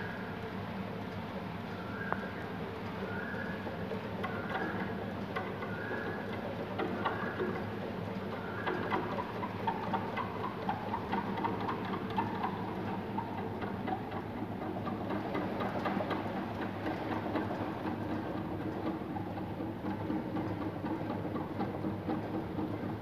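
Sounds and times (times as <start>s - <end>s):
steady mechanical hum: 0.0s - 23.0s
fast ticking rattle: 8.3s - 23.0s.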